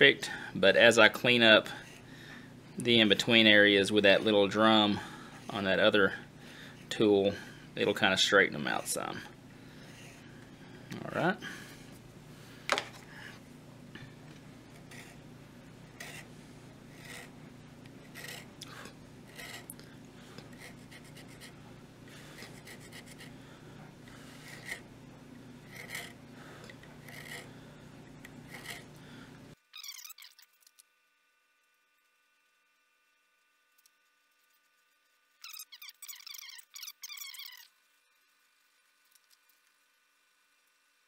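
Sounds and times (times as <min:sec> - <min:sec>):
hand saw scraping wood: 0:14.8 - 0:15.2, 0:16.0 - 0:16.3, 0:16.9 - 0:17.4, 0:18.0 - 0:19.7, 0:22.2 - 0:23.3, 0:24.1 - 0:24.9, 0:25.6 - 0:26.2, 0:26.8 - 0:27.6, 0:28.4 - 0:28.9.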